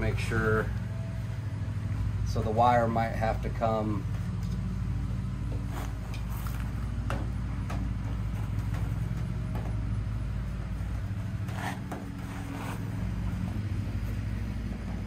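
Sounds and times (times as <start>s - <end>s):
low mechanical hum: 0.0s - 15.0s
plastic fan scraping and clicking: 5.5s - 15.0s.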